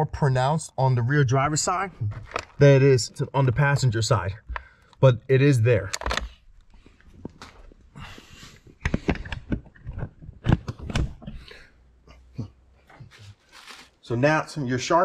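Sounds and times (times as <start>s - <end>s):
sharp clicks and knocks: 5.9s - 6.4s, 8.8s - 11.4s
rustling: 13.0s - 14.0s.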